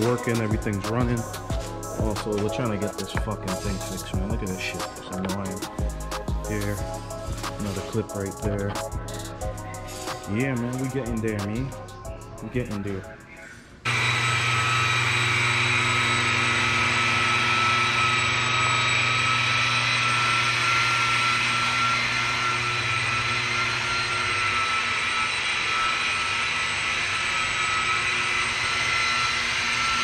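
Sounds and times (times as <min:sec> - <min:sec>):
electric polisher whining: 0:00.0 - 0:13.0, 0:13.8 - 0:30.0.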